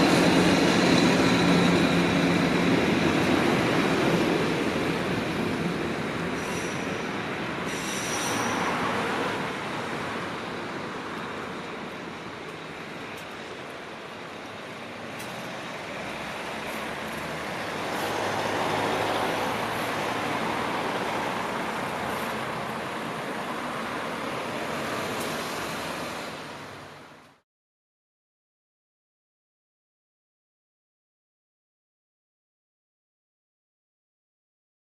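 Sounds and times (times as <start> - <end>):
bus engine: 0.0 - 27.4
bus tyre noise: 0.0 - 27.4.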